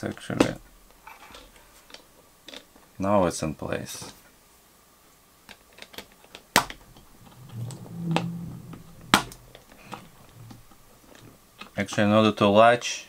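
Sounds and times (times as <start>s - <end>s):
low hum: 6.6s - 11.4s.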